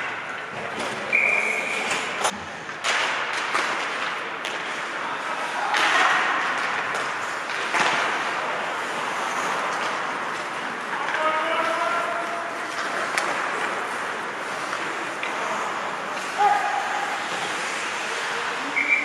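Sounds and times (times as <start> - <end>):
hockey sticks and puck clacking: 0.0 - 19.0
skates scraping on ice: 6.2 - 19.0.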